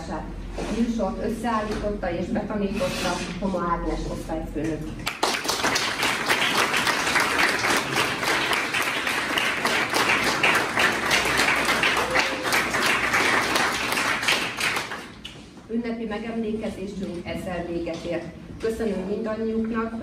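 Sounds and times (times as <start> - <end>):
audience applauding: 5.1 - 15.2.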